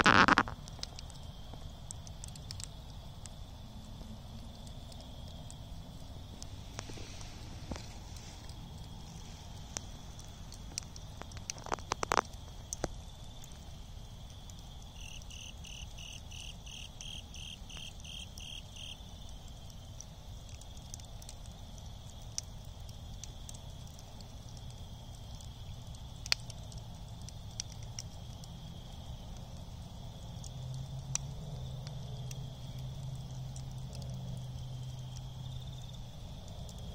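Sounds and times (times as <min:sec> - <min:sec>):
high-pitched insect drone: 0:00.0 - 0:00.5
pulsing insect call: 0:00.0 - 0:01.0, 0:05.7 - 0:19.3
embers crackling and popping: 0:00.0 - 0:36.9.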